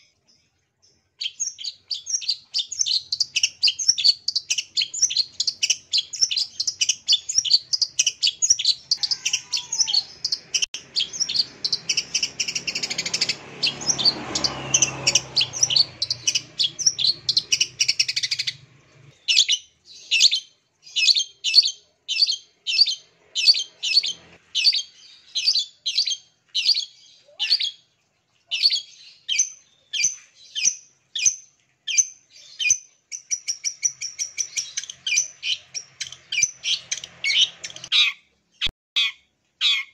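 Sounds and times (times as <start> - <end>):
bird harsh chattering call: 1.3 - 18.6, 33.4 - 38.2.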